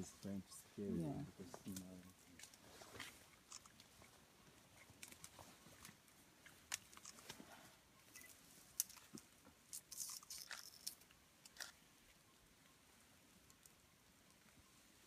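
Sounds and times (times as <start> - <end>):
leaves and stems crackling: 1.2 - 11.8.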